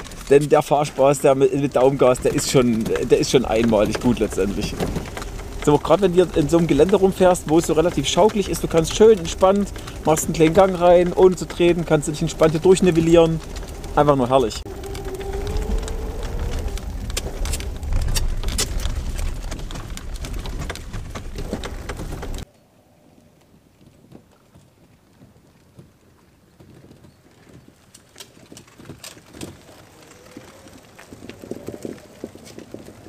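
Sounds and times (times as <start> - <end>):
tyres crackling over gravel: 0.0 - 22.5, 26.7 - 33.0
vehicle rumbling with rattles: 0.0 - 22.5.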